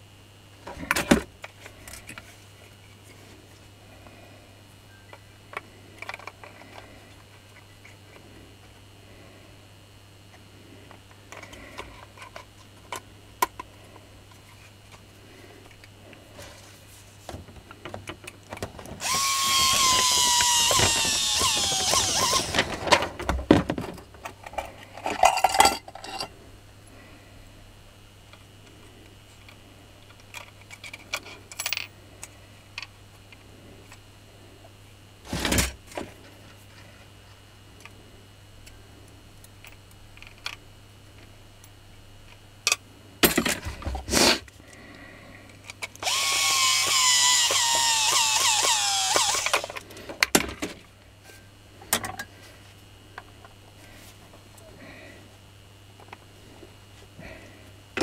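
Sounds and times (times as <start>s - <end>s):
power tool motor whine: 19.0s - 22.9s, 46.0s - 49.8s.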